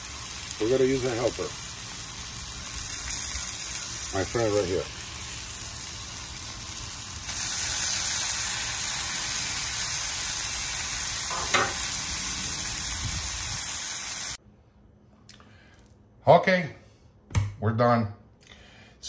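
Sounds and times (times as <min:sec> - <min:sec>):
meat sizzling on griddle: 0:00.0 - 0:14.4.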